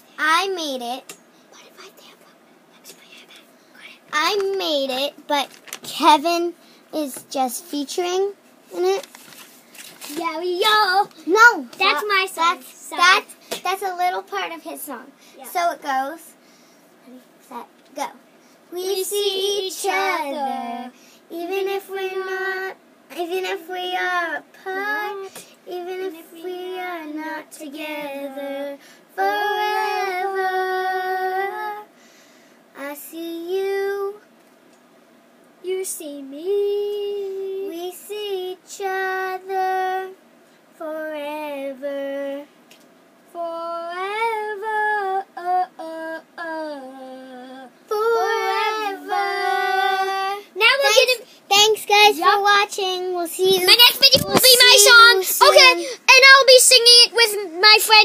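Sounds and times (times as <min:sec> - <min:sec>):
child singing unaccompanied: 0:17.9 - 0:31.9, 0:32.8 - 0:34.2, 0:35.6 - 0:40.2, 0:40.8 - 0:42.5, 0:43.3 - 0:58.0
children singing unaccompanied: 0:29.2 - 0:31.8, 0:46.4 - 0:50.5.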